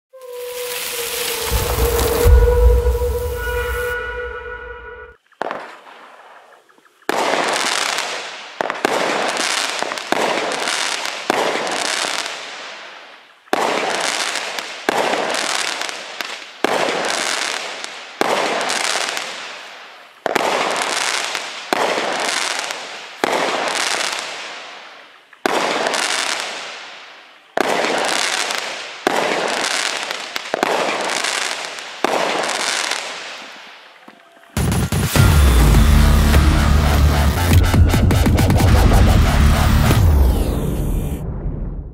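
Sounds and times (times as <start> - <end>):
firework bangs: 0.2 - 6.2, 7.1 - 33.7.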